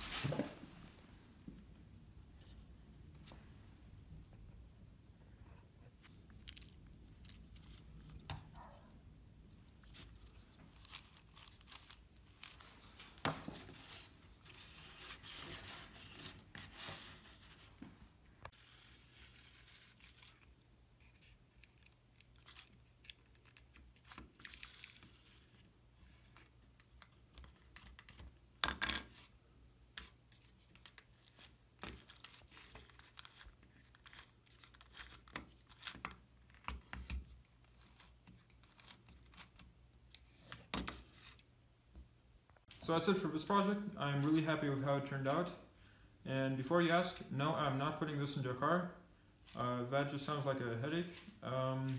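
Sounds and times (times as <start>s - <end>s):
rustling and scraping: 0.0s - 1.2s.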